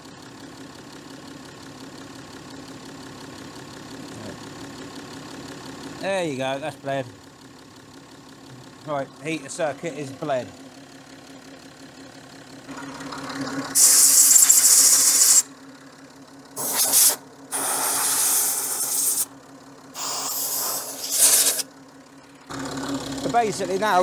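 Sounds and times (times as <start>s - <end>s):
car engine idling: 0.0s - 24.0s
air blow gun hissing: 13.8s - 15.5s, 16.6s - 19.3s, 20.0s - 21.7s.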